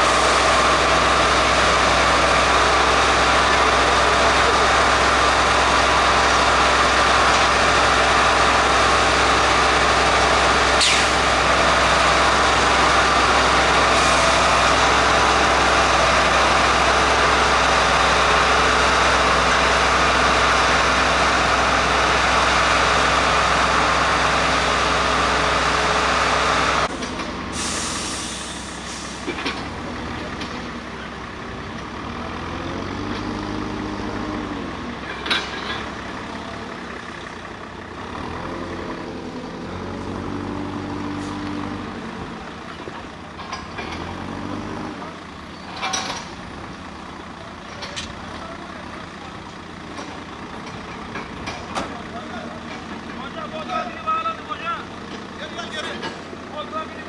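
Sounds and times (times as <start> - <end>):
tamping machine running loudly: 0.0 - 57.0
truck diesel engine: 0.0 - 57.0
brief hiss: 10.8 - 11.2.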